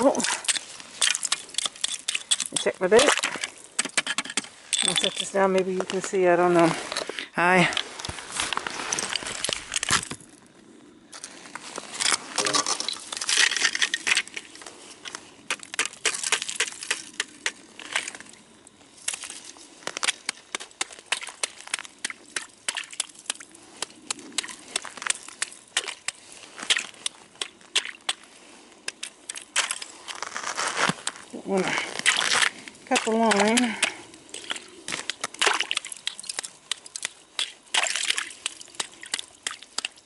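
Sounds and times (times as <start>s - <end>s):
ice chips cracking: 0.1s - 5.3s, 11.9s - 14.5s, 15.5s - 18.2s, 28.9s - 40.0s.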